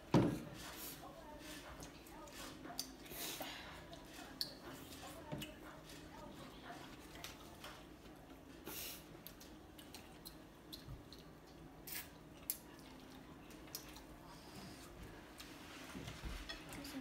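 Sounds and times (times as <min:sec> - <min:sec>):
chopsticks clicking against plates: 0:09.2 - 0:11.6.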